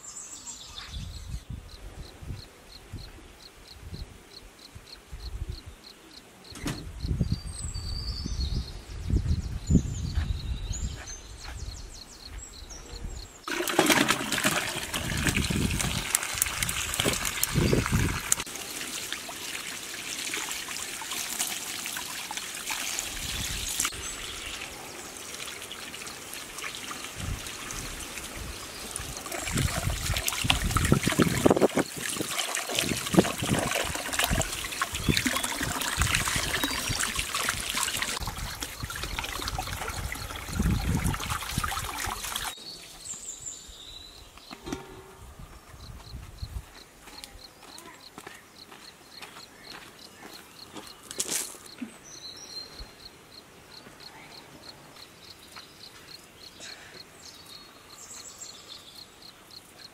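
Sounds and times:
water running from hose: 0:13.5 - 0:42.6
water splashing over vegetables: 0:13.5 - 0:42.6.

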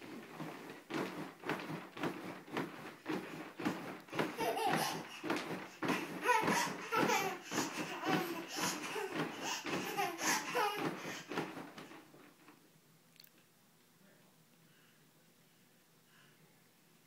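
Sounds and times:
toddler laughing: 0:04.1 - 0:11.5.

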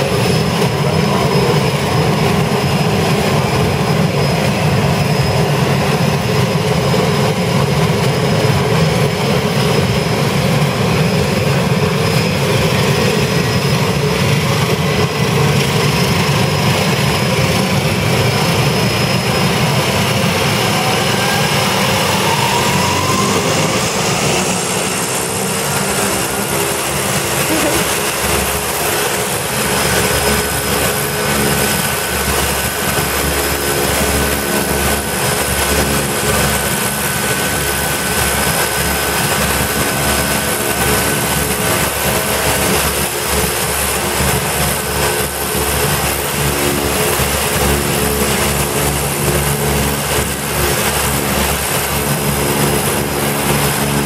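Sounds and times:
propeller drone: 0:00.0 - 0:54.0
turbine whine: 0:00.0 - 0:54.0.

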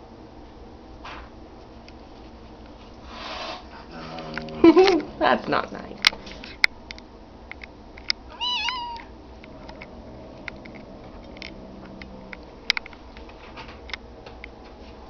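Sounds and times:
faint clicks: 0:06.0 - 0:14.4
cat meowing: 0:08.3 - 0:12.4.

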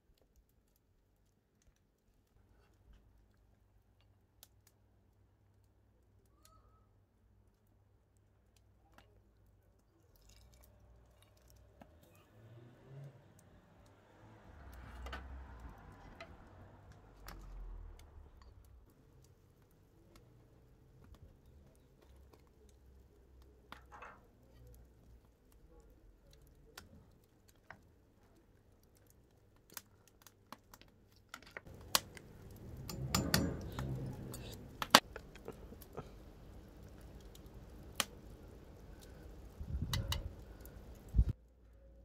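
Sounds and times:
broth boiling in metal pot: 0:06.9 - 0:12.2, 0:12.9 - 0:42.0
metal skimmer clinking on pot: 0:32.8 - 0:34.0.

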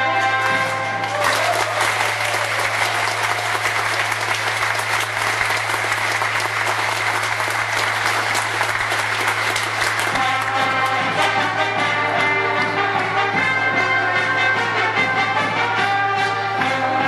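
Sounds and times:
audience applauding: 0:00.9 - 0:11.0
accordion band playing: 0:09.2 - 0:17.0.

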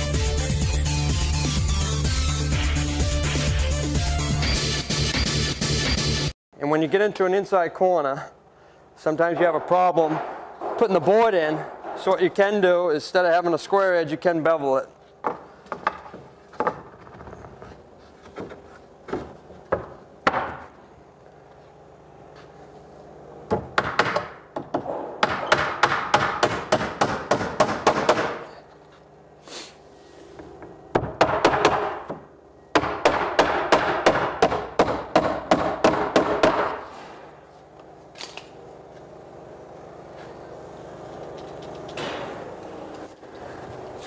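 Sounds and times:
hammer striking wooden boards: 0:09.2 - 0:12.2, 0:19.1 - 0:20.7, 0:23.5 - 0:28.5, 0:30.9 - 0:36.9.

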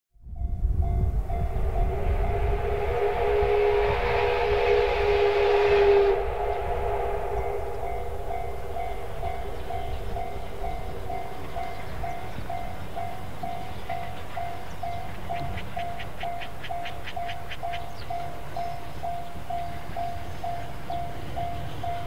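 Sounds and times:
steam locomotive whistle: 0:00.8 - 0:22.0.

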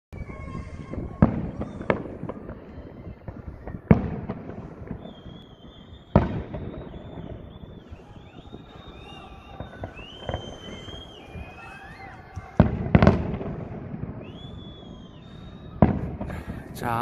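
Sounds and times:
fireworks booming: 0:00.2 - 0:17.0
small fireworks cracks: 0:00.2 - 0:17.0.

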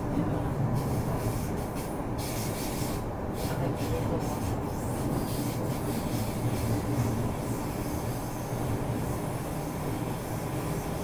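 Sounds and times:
train wheels rumbling on rails: 0:00.0 - 0:11.0
hiss: 0:00.8 - 0:11.0.

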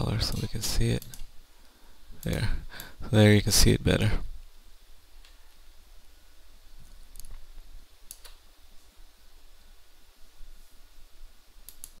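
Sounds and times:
low steady hum: 0:00.0 - 0:12.0
computer mouse clicking: 0:00.3 - 0:01.3, 0:06.8 - 0:07.4, 0:08.0 - 0:08.4, 0:11.6 - 0:12.0.

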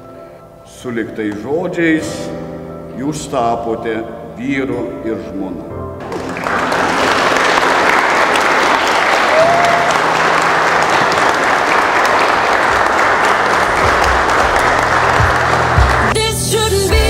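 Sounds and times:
congregation clapping: 0:06.0 - 0:16.3.

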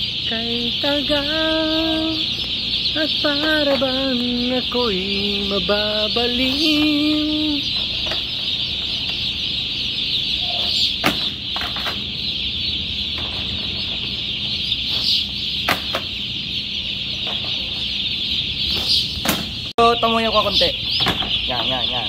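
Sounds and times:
chicks peeping: 0:00.0 - 0:22.0
person singing: 0:00.2 - 0:02.3, 0:02.9 - 0:07.8
plastic crates knocking: 0:15.6 - 0:16.2.

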